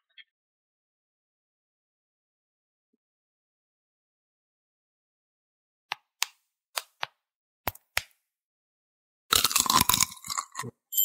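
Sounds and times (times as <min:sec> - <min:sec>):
hard candy crunching: 0:09.3 - 0:10.8.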